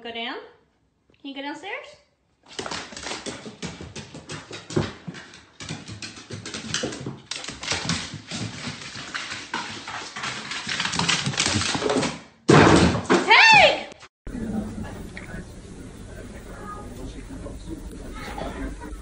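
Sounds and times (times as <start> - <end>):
dog claws clicking on wooden stairs: 2.5 - 12.2.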